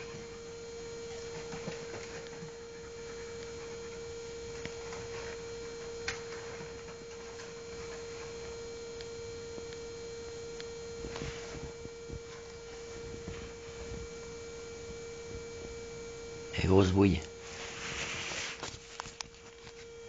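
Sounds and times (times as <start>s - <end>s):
electrical hum: 0.0s - 20.0s
soft rustling: 11.0s - 14.3s, 17.4s - 19.9s.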